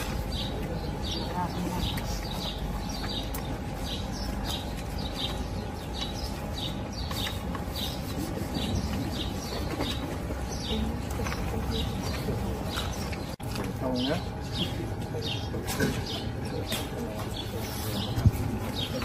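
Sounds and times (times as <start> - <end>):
bird chirping: 0.0 - 19.0
outdoor background noise: 0.0 - 19.0.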